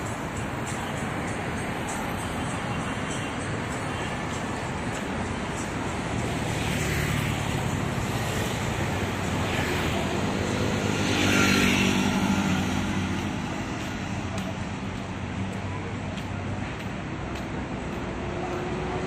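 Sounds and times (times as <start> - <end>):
vehicles passing on road: 0.0 - 19.0.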